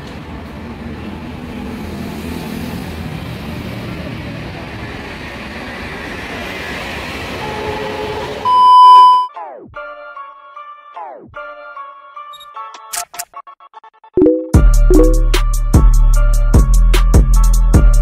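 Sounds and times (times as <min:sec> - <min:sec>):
loud high electronic beep: 0:08.5 - 0:09.3, 0:14.2 - 0:15.3.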